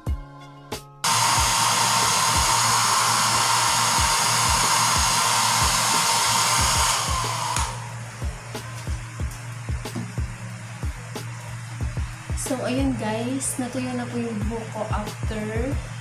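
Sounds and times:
background music with beat: 0:00.0 - 0:02.6, 0:04.0 - 0:13.3, 0:14.3 - 0:16.0
hair dryer blowing: 0:01.0 - 0:16.0.

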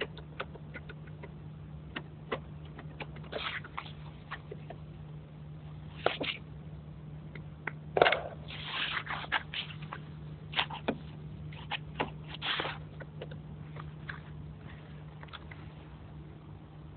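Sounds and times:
steady low hum: 0:00.0 - 0:16.9
foam wrap rustling: 0:08.5 - 0:13.0.

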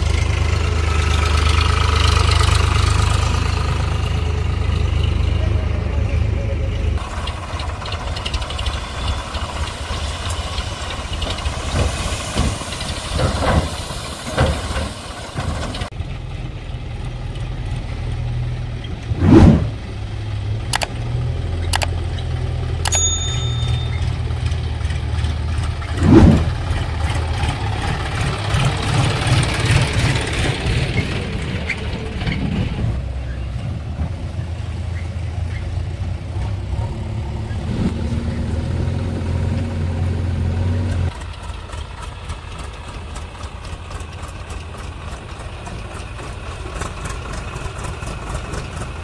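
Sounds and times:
diesel tractor engines rumbling: 0:00.0 - 0:49.0
sharp clicks: 0:20.7 - 0:21.0, 0:21.6 - 0:22.0.

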